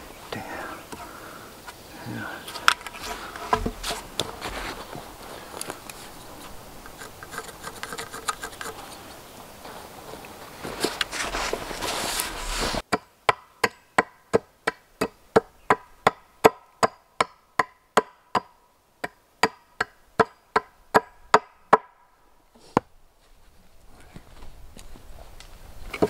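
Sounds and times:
noisy hiss: 0.0 - 26.0
axe chopping wood: 12.8 - 22.0.

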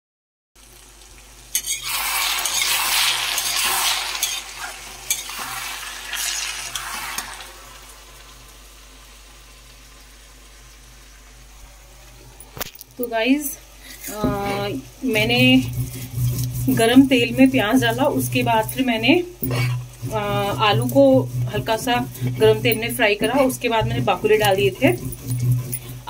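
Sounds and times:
vegetables sizzling in hot oil: 0.6 - 26.0
metal spoon clinking on pan: 1.6 - 2.8, 4.2 - 4.5, 5.1 - 5.3.

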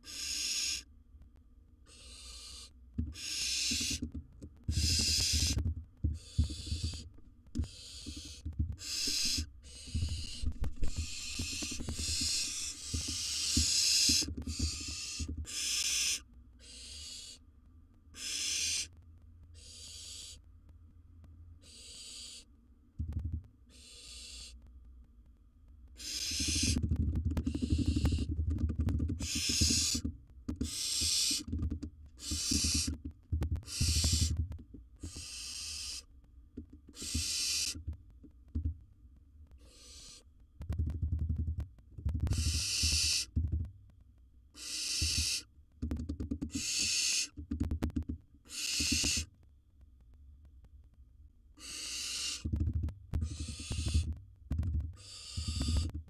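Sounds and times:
barn owl hissing: 0.0 - 0.9, 1.9 - 4.0, 4.7 - 5.6, 6.2 - 17.4, 18.2 - 18.9, 19.6 - 20.4, 21.6 - 22.5, 23.7 - 24.6, 26.0 - 26.8, 27.4 - 28.3, 29.2 - 31.5, 32.2 - 33.0, 33.6 - 34.4, 35.0 - 36.1, 36.9 - 37.8, 39.6 - 40.3, 42.3 - 43.3, 44.6 - 45.5, 46.5 - 47.4, 48.4 - 49.3, 51.6 - 52.5, 53.2 - 54.1, 55.0 - 55.9.

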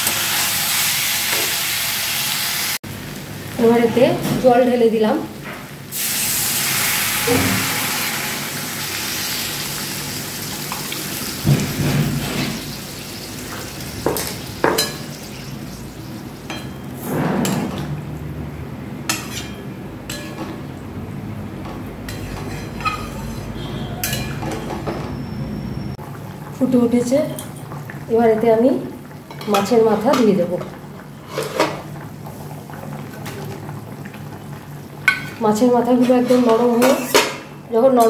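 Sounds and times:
water sizzling in hot pan: 0.0 - 4.6, 5.8 - 17.0
metal spatula scraping pan: 19.1 - 20.4, 22.1 - 24.8, 36.0 - 37.4.

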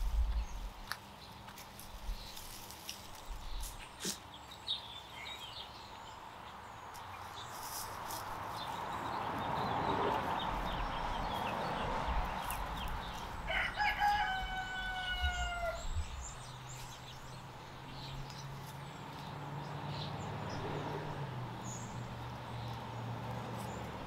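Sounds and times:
rooster crowing: 13.4 - 16.0.

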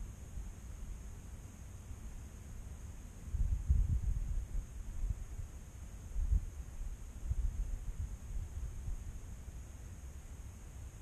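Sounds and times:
faint high hiss: 0.0 - 11.0
wind buffeting microphone: 3.3 - 5.3.

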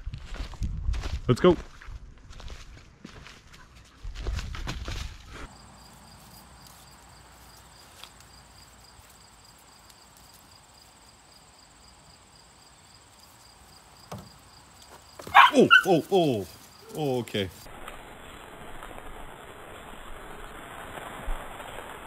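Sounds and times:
insects chirring: 5.4 - 21.2.

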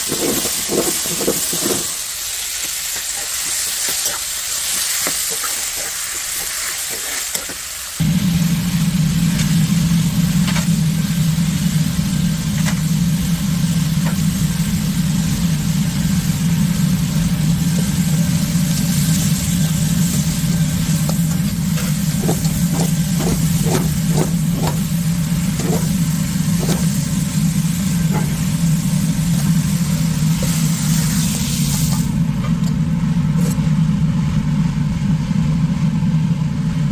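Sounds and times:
food sizzling in a wok: 0.0 - 32.2
loud low hum: 8.0 - 36.9.

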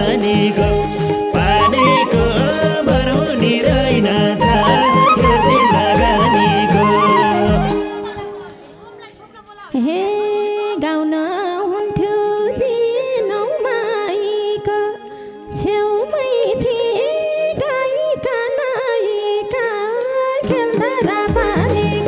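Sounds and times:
held accompanying drone note: 4.4 - 8.2
woman singing ornamented melody: 4.4 - 8.7.

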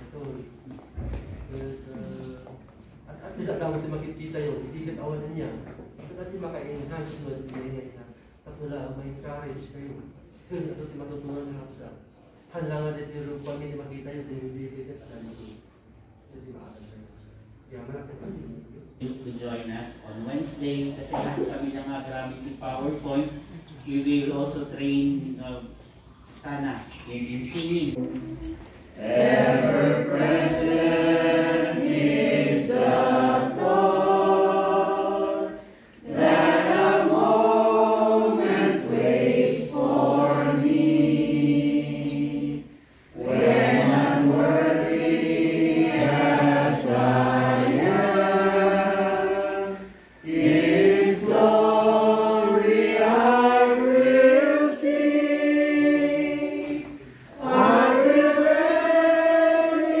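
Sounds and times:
congregation singing a hymn: 27.8 - 60.0.

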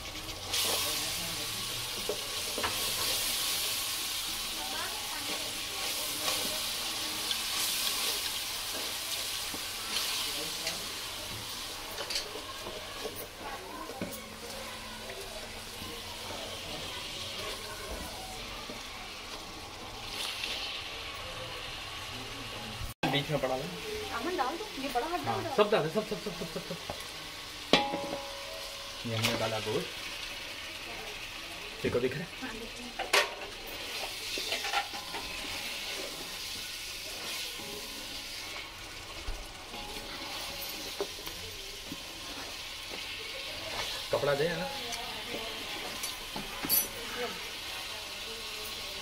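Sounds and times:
onions sizzling in hot oil: 0.0 - 49.0
spatula scraping a pot: 33.6 - 38.7, 39.7 - 41.3.

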